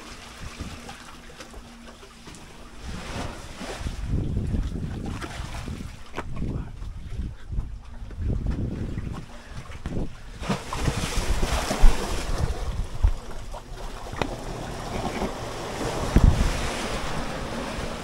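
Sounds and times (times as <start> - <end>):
sea waves washing in: 2.5 - 6.1, 8.9 - 18.0
wind buffeting microphone: 2.8 - 18.0.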